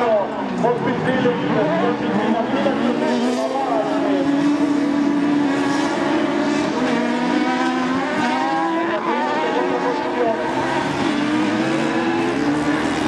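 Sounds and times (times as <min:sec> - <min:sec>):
buggy engines racing: 0:00.0 - 0:13.0.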